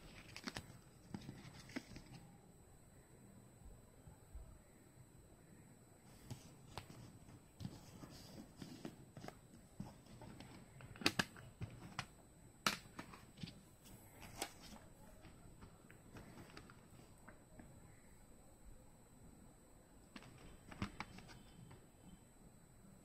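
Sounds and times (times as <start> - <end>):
plastic cd cases clicking: 9.3 - 13.6.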